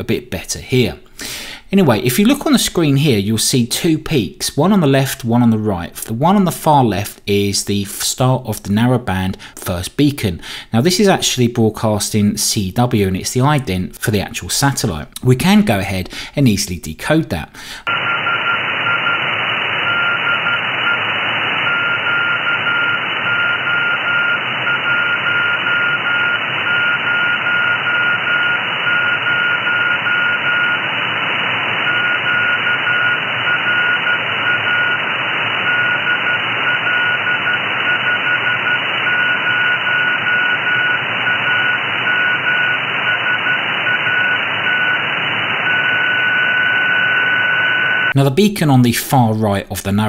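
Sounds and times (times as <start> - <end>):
receiver hiss: 17.4 - 48.2
morse code tone: 17.9 - 48.1.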